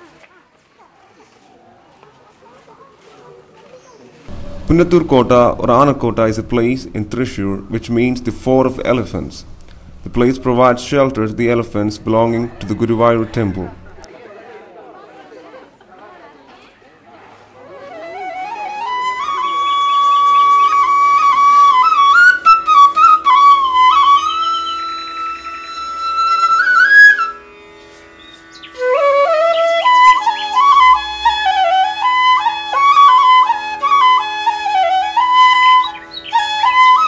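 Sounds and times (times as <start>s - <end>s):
flute playing slow melody: 4.3s - 12.9s, 17.6s - 37.0s
steady drone: 4.3s - 14.1s.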